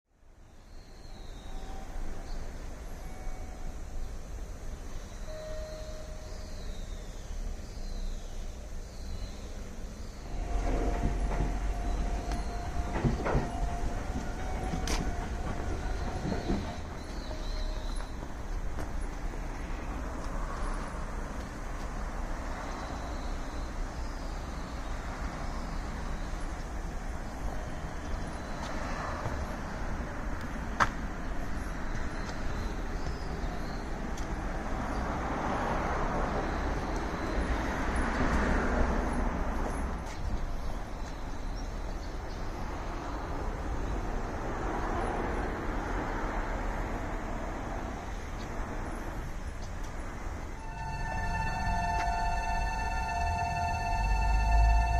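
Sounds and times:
vehicles passing: 1.8 - 54.9.

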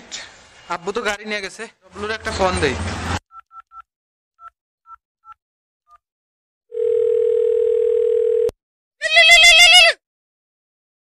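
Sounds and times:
phone line tone: 6.7 - 8.6.

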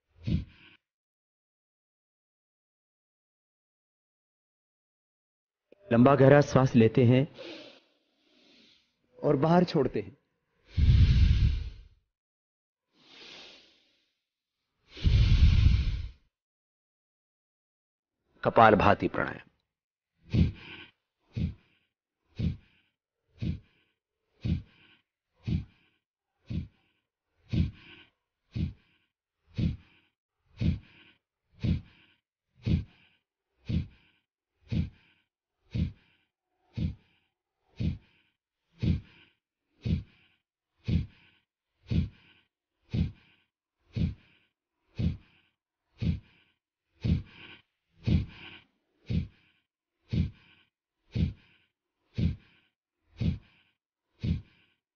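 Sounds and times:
forceful nasal exhalations: 7.4 - 9.0, 10.6 - 12.0, 13.0 - 14.2, 14.8 - 16.3, 20.3 - 54.8.

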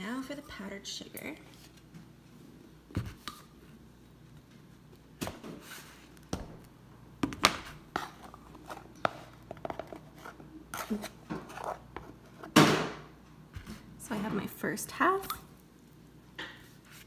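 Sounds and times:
kitchen handling knocks and rustles: 12.4 - 14.5.

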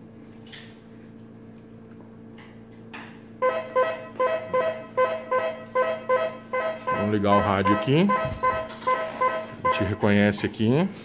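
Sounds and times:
low electronic hum: 0.0 - 11.0
electronic beep pattern: 3.4 - 10.2.

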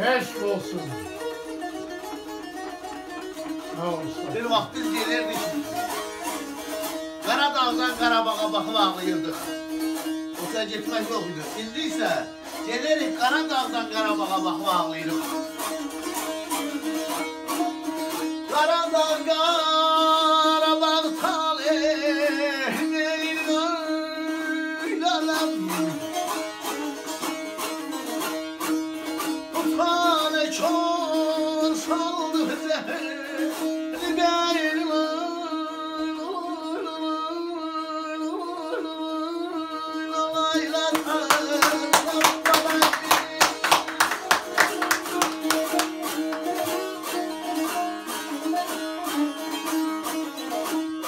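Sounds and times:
lute strummed fast: 0.0 - 19.7, 40.6 - 51.0
man singing: 18.5 - 26.3, 29.6 - 47.8.

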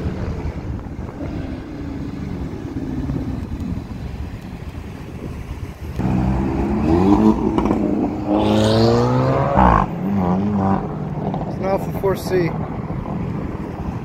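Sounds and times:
car engine accelerating hard: 6.0 - 12.7.

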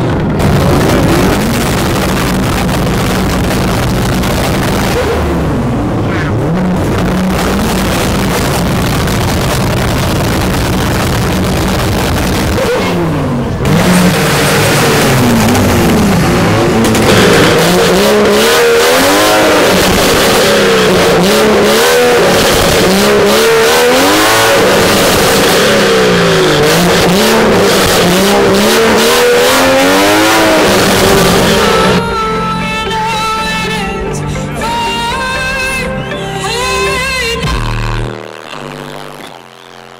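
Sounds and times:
car engine revving in blips: 0.0 - 32.8, 33.7 - 39.9
engine crackles: 0.0 - 33.2, 33.8 - 39.9.

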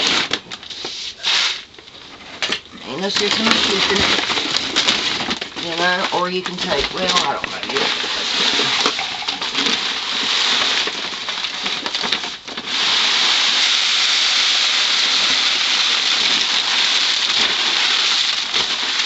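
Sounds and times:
grain pouring hiss: 0.0 - 1.7, 5.7 - 19.0
paper sacks rustling: 0.0 - 19.0.

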